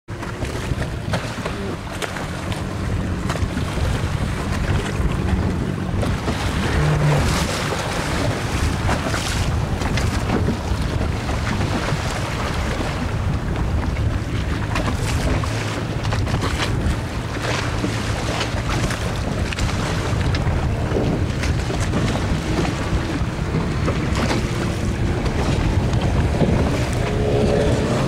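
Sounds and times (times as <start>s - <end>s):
motorboat engine humming: 0.1s - 28.0s
waves splashing: 0.1s - 28.0s
wind buffeting microphone: 0.1s - 28.0s.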